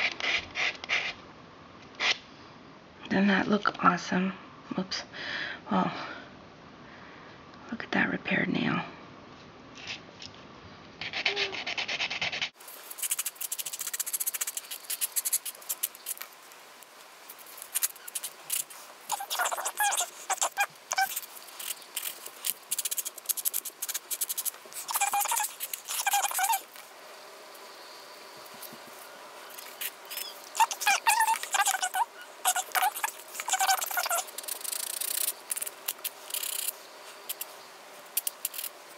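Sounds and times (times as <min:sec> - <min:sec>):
nail buffer scratching fingernail: 0:11.0 - 0:16.4, 0:17.3 - 0:26.8, 0:29.5 - 0:37.5, 0:38.2 - 0:38.7.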